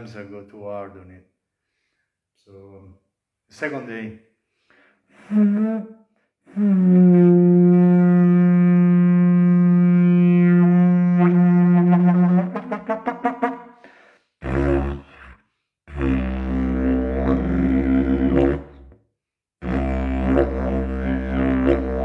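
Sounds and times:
didgeridoo drone: 15.9 - 18.8, 19.6 - 22.0.

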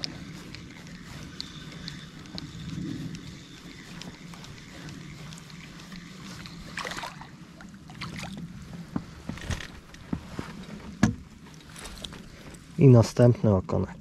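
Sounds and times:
water splashing: 6.4 - 8.4.

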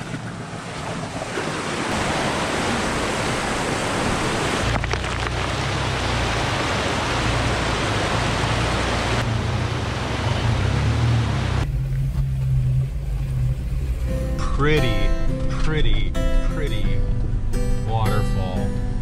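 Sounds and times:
flowing water rushing: 0.0 - 14.4
low rumble: 11.5 - 17.9.

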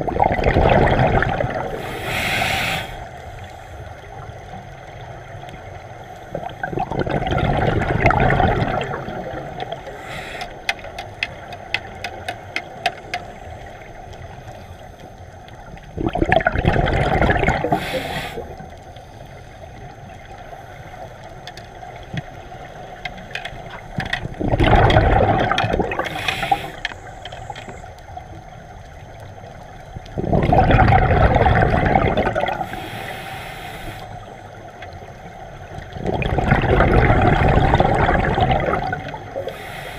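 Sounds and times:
underwater regulator bubbling: 0.0 - 3.2, 6.3 - 13.8, 15.8 - 18.7, 23.2 - 27.8, 30.1 - 34.2, 35.8 - 39.9
breathing through regulator: 1.7 - 3.7, 9.8 - 10.8, 17.6 - 18.6, 25.9 - 27.1, 32.5 - 34.3, 39.4 - 39.9
small clicks: 9.6 - 15.6, 21.2 - 24.4.

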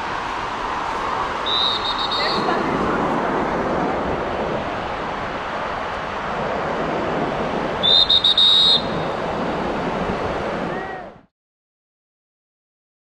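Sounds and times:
surf washing: 0.0 - 11.3
wind: 0.0 - 11.3
shrill whistle blasts: 1.4 - 2.4, 7.8 - 9.0.

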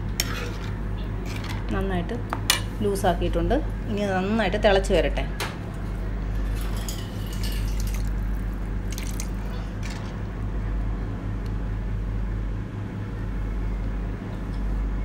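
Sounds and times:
ladle stirring and pouring liquid: 6.5 - 10.1
liquid dripping and splashing: 6.6 - 9.6.

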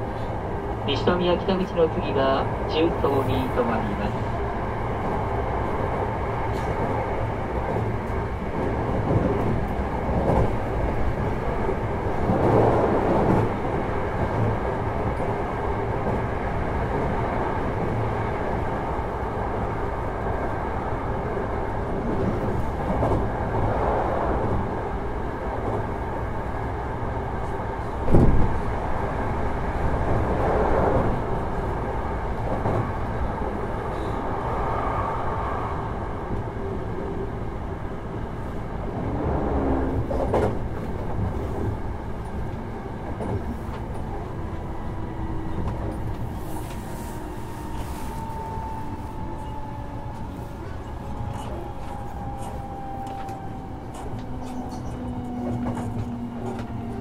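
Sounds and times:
train wheel-on-rail rumble: 0.0 - 57.0.

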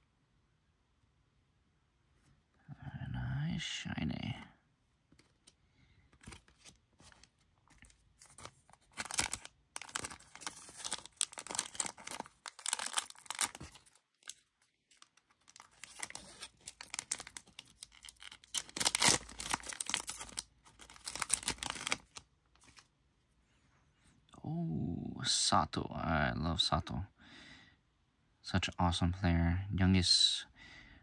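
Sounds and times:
plastic wrapper crinkling and tearing: 6.2 - 22.9.

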